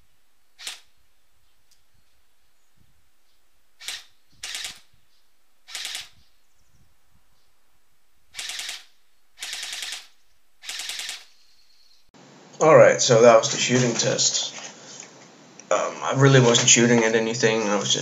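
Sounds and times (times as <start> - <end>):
airsoft gun full-auto bursts: 3.8 - 4.9, 5.6 - 6.2, 8.3 - 11.4.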